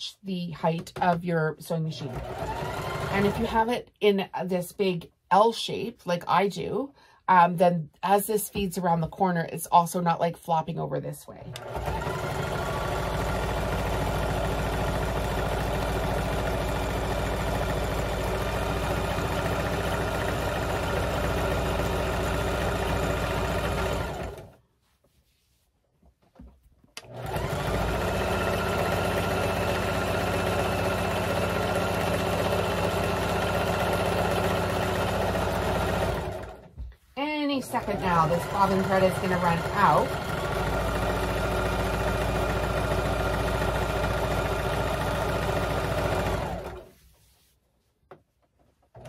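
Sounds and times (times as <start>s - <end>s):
electric sewing machine running: 2.0s - 3.6s, 11.5s - 24.6s, 27.0s - 36.7s, 37.6s - 46.9s.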